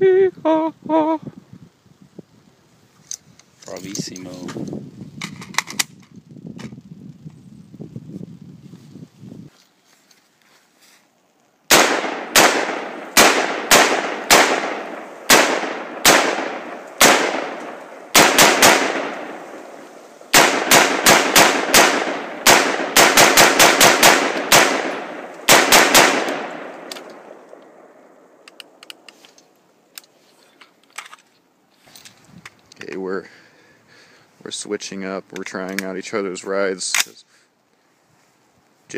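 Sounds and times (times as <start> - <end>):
rifle gunshots echoing: 11.7 - 28.0.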